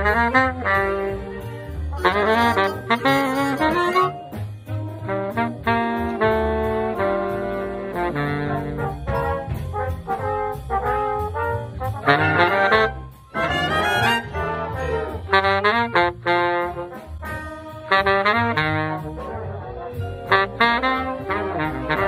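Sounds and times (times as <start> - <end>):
saxophone melody: 0.0 - 4.4, 5.0 - 9.6, 12.0 - 19.2, 20.2 - 22.0.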